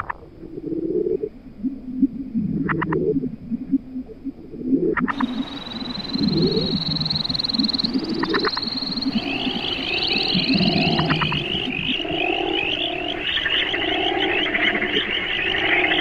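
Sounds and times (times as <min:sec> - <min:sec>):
frogs croaking low: 0:00.0 - 0:16.0
higher warbling frog chorus: 0:05.0 - 0:16.0
fast high frog trill: 0:05.1 - 0:15.0.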